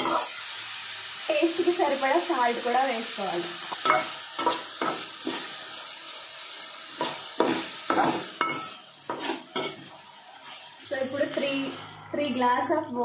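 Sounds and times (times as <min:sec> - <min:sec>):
vegetables sizzling in oil: 0:00.0 - 0:12.3
spoon scraping a pot: 0:07.0 - 0:09.9.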